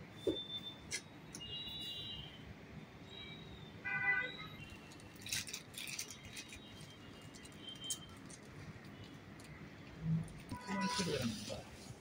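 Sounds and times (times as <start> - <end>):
plastic bags crinkling: 4.8 - 8.8.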